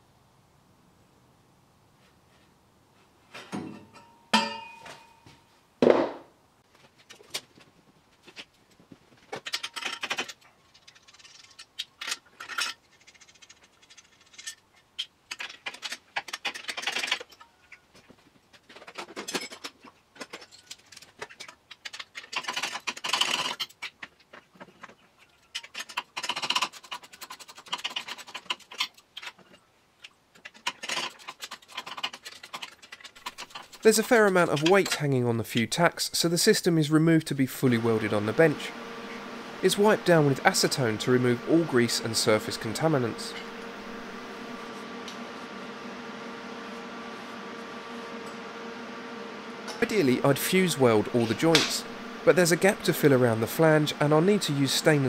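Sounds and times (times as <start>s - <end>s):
sharp ringing knocks: 3.9s - 5.3s
metal tube scraping and rattling: 30.4s - 35.0s.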